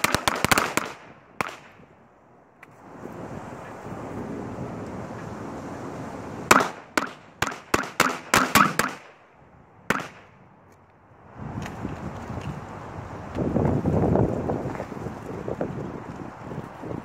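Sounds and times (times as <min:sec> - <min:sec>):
firecrackers banging: 0:00.0 - 0:01.9, 0:06.5 - 0:09.3.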